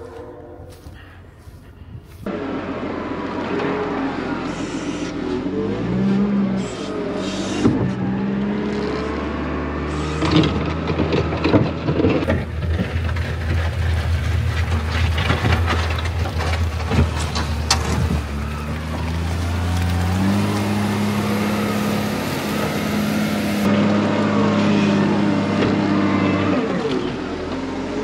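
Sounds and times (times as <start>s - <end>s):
diesel engine revving: 2.3s - 28.0s
metal clanks and knocks: 10.3s - 18.4s.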